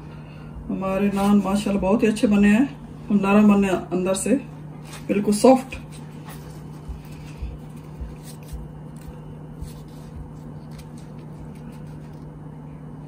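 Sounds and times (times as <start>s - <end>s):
low hum: 0.0s - 13.0s
hands tearing bread: 7.1s - 12.3s.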